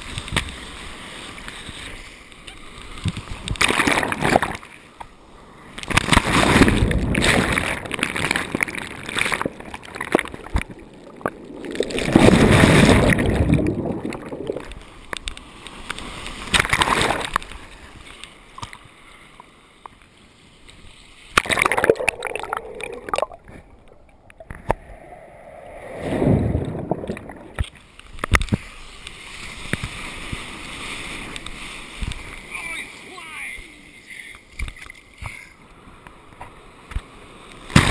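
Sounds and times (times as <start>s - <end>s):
waves splashing and sloshing: 0.0s - 37.9s
muffled gurgling water: 6.7s - 15.1s, 21.5s - 27.7s.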